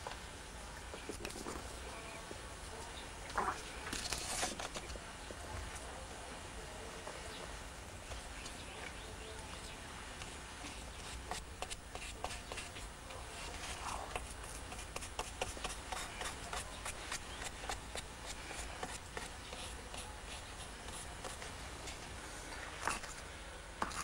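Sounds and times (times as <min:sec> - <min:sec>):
hand tool ticking and scraping paper: 0:03.9 - 0:05.0, 0:10.9 - 0:22.1.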